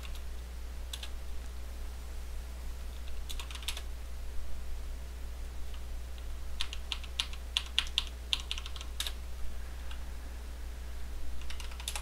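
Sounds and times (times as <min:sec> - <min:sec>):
steady low hum: 0:00.0 - 0:12.0
keyboard typing: 0:00.9 - 0:01.2, 0:03.0 - 0:03.9, 0:05.7 - 0:09.2, 0:11.4 - 0:12.0.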